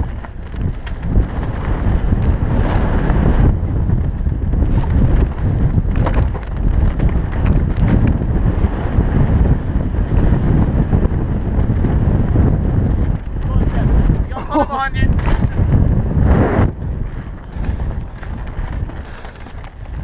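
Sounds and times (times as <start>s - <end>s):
bike rattling and clattering: 0.0s - 20.0s
tyres rumbling on dirt trail: 0.0s - 20.0s
wind buffeting microphone: 0.0s - 20.0s.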